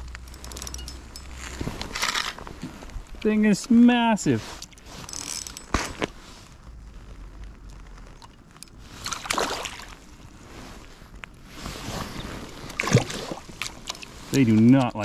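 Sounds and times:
fish splashing in water: 9.0 - 10.0, 12.7 - 14.1.

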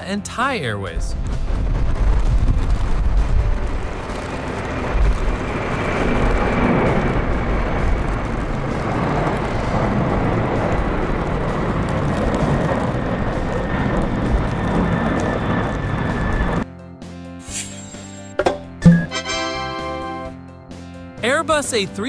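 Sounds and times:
deep rumble: 1.0 - 16.6
jet engine noise: 1.1 - 16.6.

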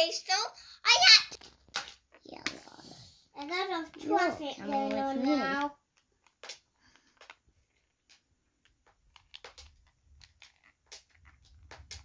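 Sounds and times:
light clicks of magnetic maze pieces: 3.4 - 12.0.

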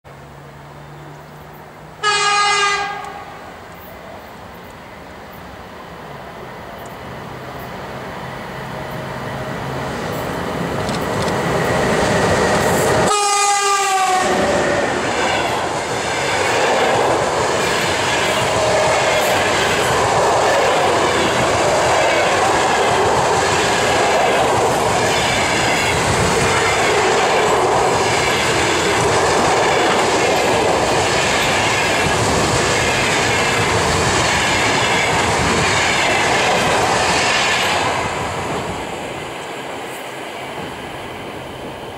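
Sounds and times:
electric locomotive approaching: 0.1 - 41.9
train horn blast: 2.0 - 3.5, 13.0 - 14.6
train wheels clickety-clack: 10.0 - 13.2, 14.3 - 41.9.

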